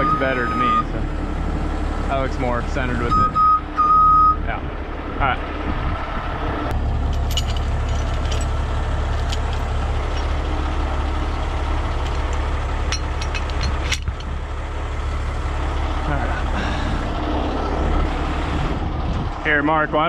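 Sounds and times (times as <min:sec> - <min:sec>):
diesel engine idling: 0:00.0 - 0:20.0
metallic chain clinks: 0:07.1 - 0:10.4, 0:12.0 - 0:14.3.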